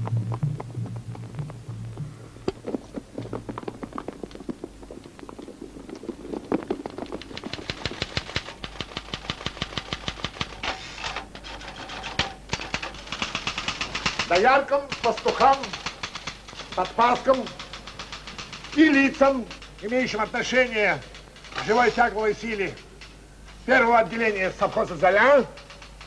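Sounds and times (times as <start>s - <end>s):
typewriter keys clacking: 12.2s - 22.9s.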